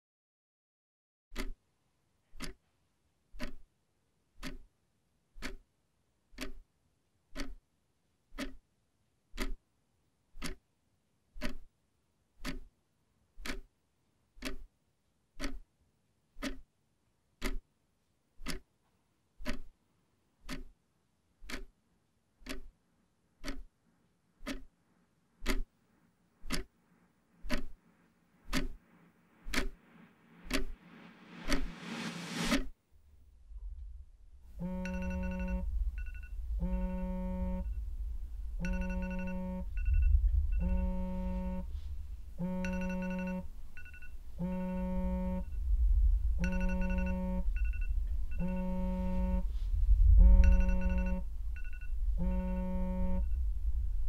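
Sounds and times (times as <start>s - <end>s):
clock ticking: 1.3s - 1.6s, 2.3s - 2.6s, 3.3s - 3.7s, 4.4s - 4.7s, 5.4s - 5.7s, 6.3s - 6.7s, 7.3s - 7.7s, 8.3s - 8.7s, 9.3s - 9.6s, 10.3s - 10.7s, 11.4s - 11.8s, 12.4s - 12.8s, 13.4s - 13.8s, 14.4s - 14.8s, 15.4s - 15.7s, 16.4s - 16.7s, 17.4s - 17.7s, 18.4s - 18.8s, 19.4s - 19.8s, 20.4s - 20.8s, 21.4s - 21.8s, 22.4s - 22.8s, 23.4s - 23.8s, 24.4s - 24.8s, 25.4s - 25.8s, 26.4s - 31.7s, 32.4s - 32.8s, 34.5s - 37.8s, 38.6s - 41.7s, 42.3s - 45.5s, 46.4s - 49.5s, 50.2s - 53.2s
low hum: 28.8s - 54.0s.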